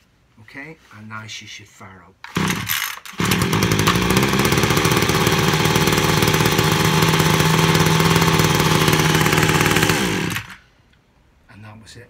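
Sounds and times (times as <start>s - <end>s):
strimmer engine running: 2.3s - 10.6s.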